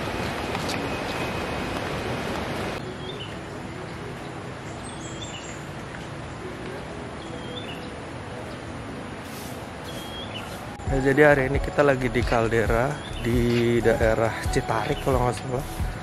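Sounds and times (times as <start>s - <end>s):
river rapids rushing: 0.0s - 7.2s
bird chirping: 2.8s - 5.8s, 7.2s - 8.6s, 9.3s - 16.0s.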